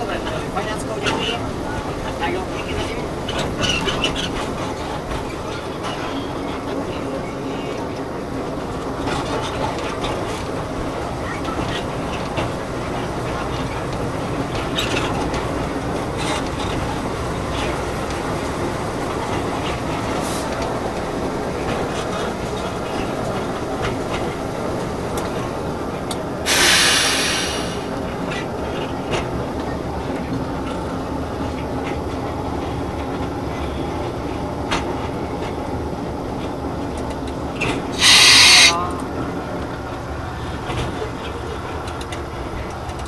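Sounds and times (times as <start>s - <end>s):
train rumbling on track: 0.0s - 43.0s
short loud hiss: 26.5s - 27.9s, 38.0s - 38.8s.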